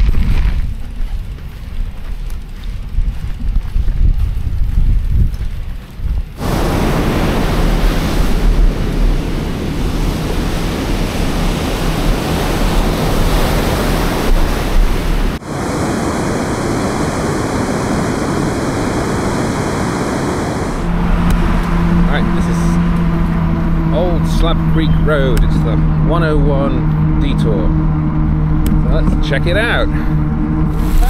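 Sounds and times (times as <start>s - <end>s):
wind buffeting microphone: 0.0s - 31.0s
wind rushing: 2.8s - 25.2s, 26.7s - 31.0s
ocean surf: 6.4s - 25.6s, 30.6s - 31.0s.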